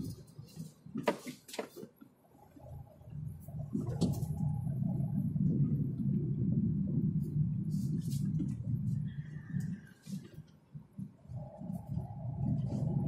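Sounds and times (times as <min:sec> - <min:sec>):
car engine and tyres rumble: 0:00.0 - 0:13.0.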